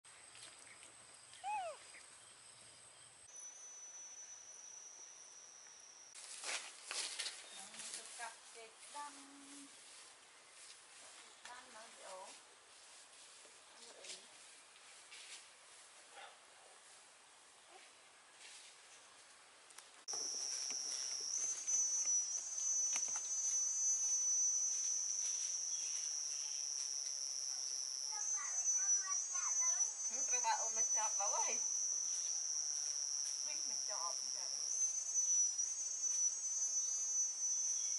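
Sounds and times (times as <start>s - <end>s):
baby monkey call: 1.4s - 2.0s
high-pitched insect drone: 3.3s - 6.2s, 20.1s - 37.9s.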